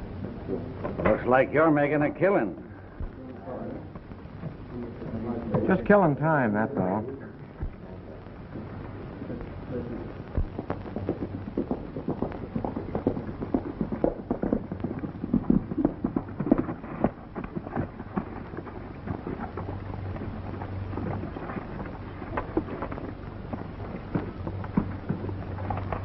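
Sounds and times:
old film soundtrack hum and crackle: 0:00.0 - 0:26.0
horse hooves on dirt: 0:10.3 - 0:26.0.

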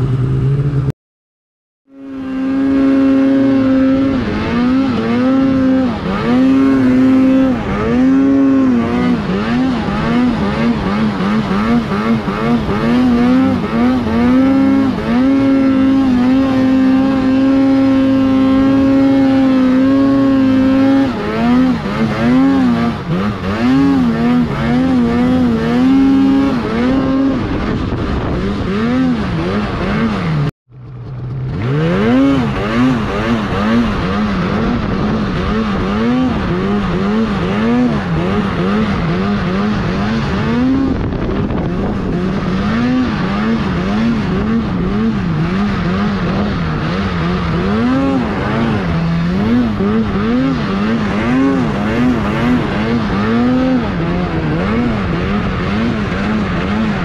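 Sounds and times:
snowmobile engine revving: 0:01.9 - 0:57.0.

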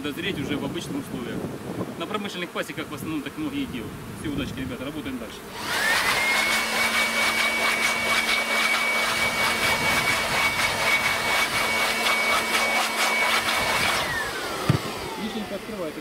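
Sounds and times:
electric blower high whine: 0:04.4 - 0:16.0
motor spinning down: 0:05.5 - 0:16.0.

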